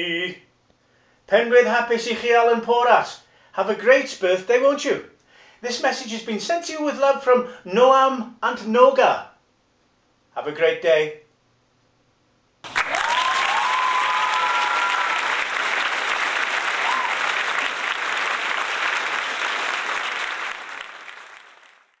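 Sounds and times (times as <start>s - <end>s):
crowd applause: 12.6s - 22.0s
crowd cheering and whoops: 12.7s - 19.0s.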